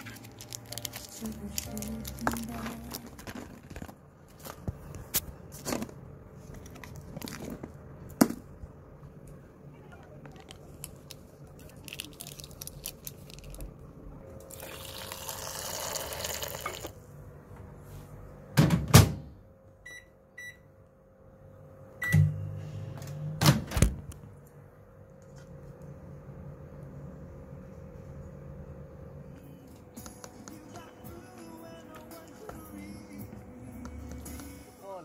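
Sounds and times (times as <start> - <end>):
microwave oven humming: 0.0 - 35.0
water pouring: 14.5 - 17.0
microwave door shutting: 23.3 - 24.1.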